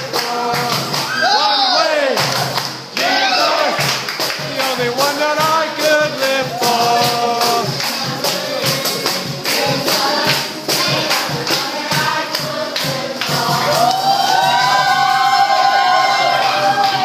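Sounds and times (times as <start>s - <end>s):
hand claps: 0.0s - 1.1s, 2.1s - 3.1s, 3.8s - 13.5s
group singing worship song: 0.0s - 17.0s.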